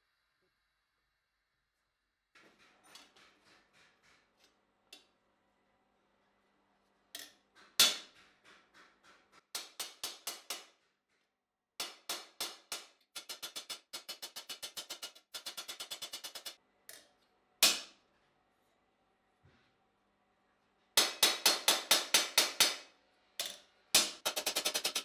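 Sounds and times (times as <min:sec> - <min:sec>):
hammer striking steel: 0:21.0 - 0:22.8.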